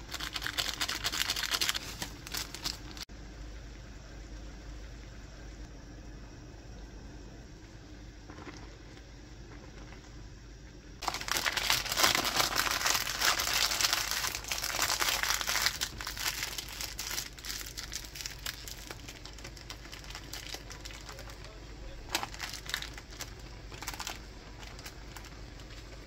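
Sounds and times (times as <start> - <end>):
plastic wrappers crinkling: 0.0 - 3.1, 11.0 - 26.0.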